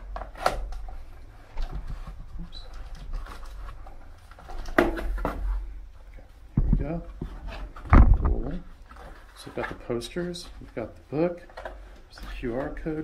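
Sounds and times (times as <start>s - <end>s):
cardboard flaps rustling: 6.6s - 13.0s.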